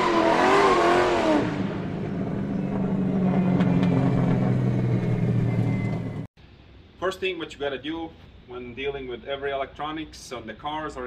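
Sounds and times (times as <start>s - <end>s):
car engine running: 1.4s - 6.3s.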